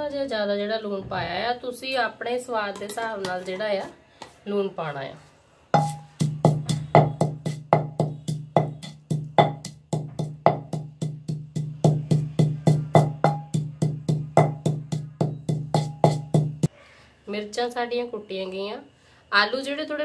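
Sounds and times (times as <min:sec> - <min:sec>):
pestle pounding in clay mortar: 0:05.8 - 0:16.7.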